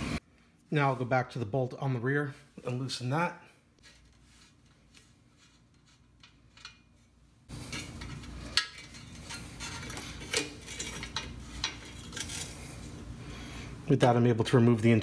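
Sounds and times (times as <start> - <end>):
metal clinks and scraping: 3.8 - 13.0.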